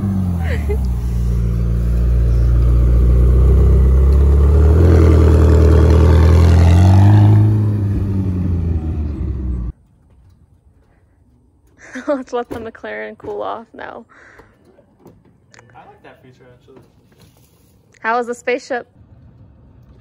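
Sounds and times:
sports car engine at low speed: 0.0 - 9.8, 18.9 - 20.0.

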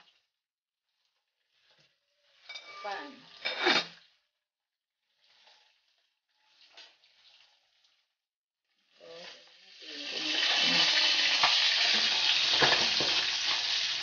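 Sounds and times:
metal pot lid clattering: 2.5 - 4.0
oil sizzling with frying fish: 8.8 - 14.0.

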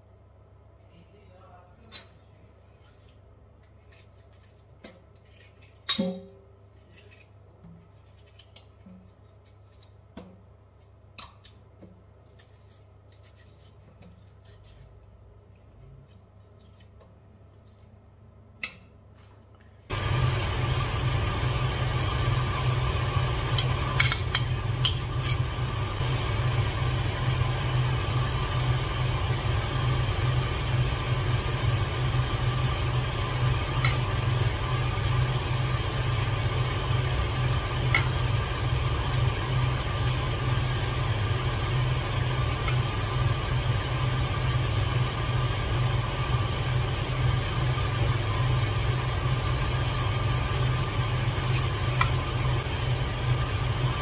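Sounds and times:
electric appliance motor hum: 19.9 - 54.0.

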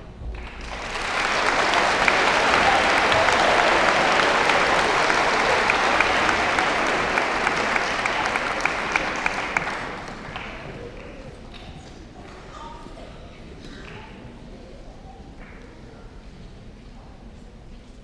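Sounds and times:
audience applauding: 0.3 - 11.5.

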